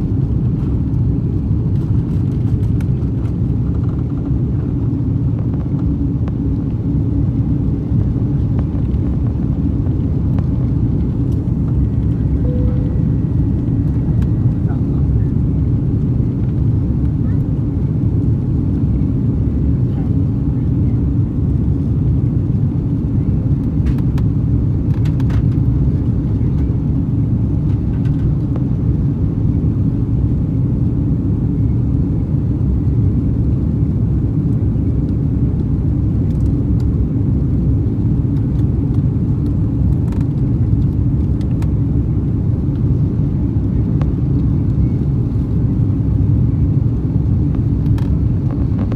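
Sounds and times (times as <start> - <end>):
aircraft cabin engine rumble: 0.0 - 48.9.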